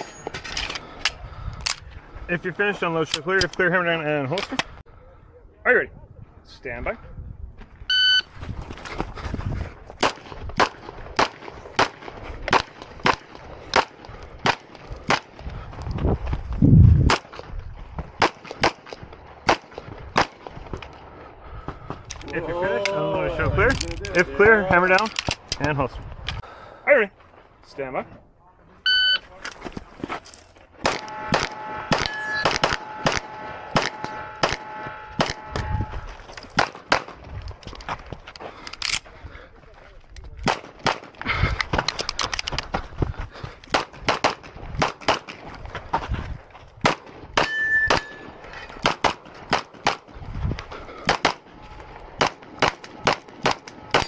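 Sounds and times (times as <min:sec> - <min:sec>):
pistol shots: 0:30.8 - 0:35.7, 0:52.2 - 0:54.0
low rush of noise: 0:30.8 - 0:36.5
metallic ringing: 0:30.9 - 0:36.4, 0:47.4 - 0:48.6.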